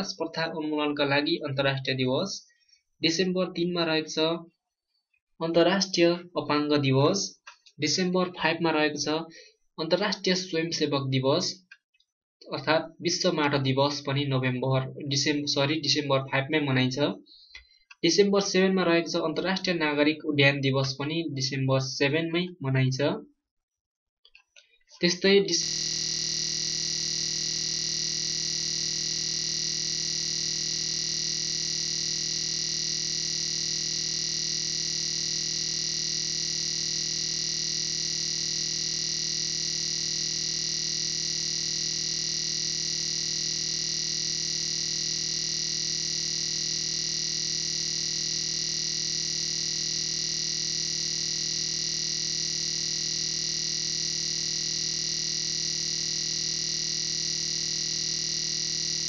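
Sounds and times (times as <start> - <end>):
steady synthesizer drone: 25.6 - 59.0.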